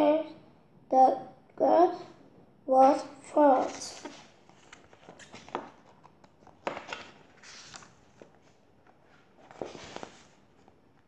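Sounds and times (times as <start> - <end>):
paper page rustling: 3.6 - 10.8.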